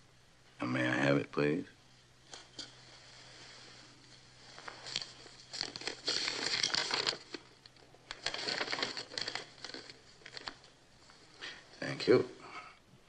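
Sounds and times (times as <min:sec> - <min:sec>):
paper rustling and crinkling: 0:02.3 - 0:12.1.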